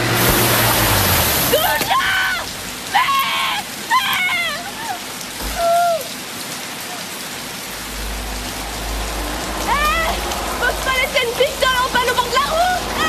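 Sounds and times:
heavy rain on pavement: 0.0s - 13.0s
woman crying: 1.5s - 6.2s.

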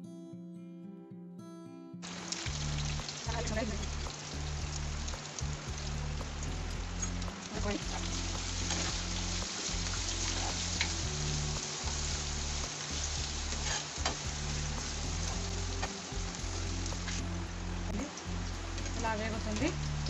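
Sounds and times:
onions sizzling in oil: 2.0s - 20.0s
spatula scraping a pan: 13.5s - 14.3s.

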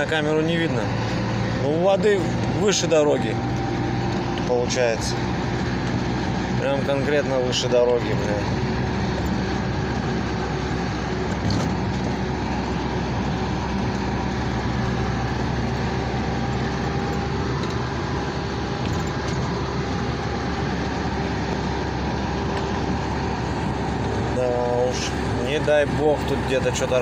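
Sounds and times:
car engine and road noise: 0.0s - 27.0s.

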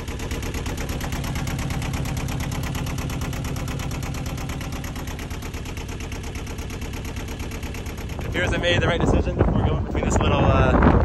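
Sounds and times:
diesel engine idling: 0.0s - 11.0s.

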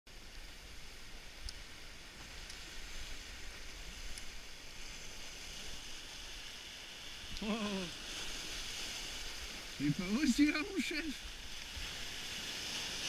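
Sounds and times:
waves breaking on rocks: 0.1s - 13.0s
faint ticks: 1.3s - 2.7s, 3.5s - 4.4s.

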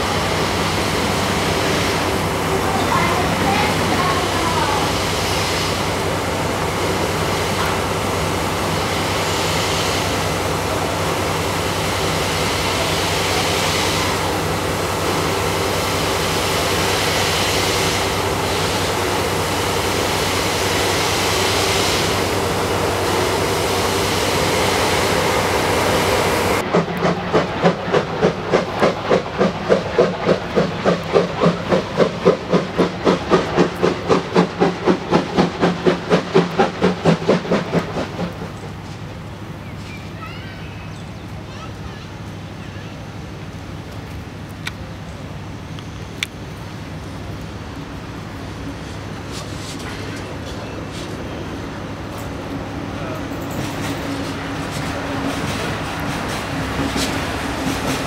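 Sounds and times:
hiss of escaping steam: 0.0s - 39.1s, 48.7s - 51.5s
steam locomotive exhaust chuffs: 0.0s - 39.6s, 43.7s - 58.0s.

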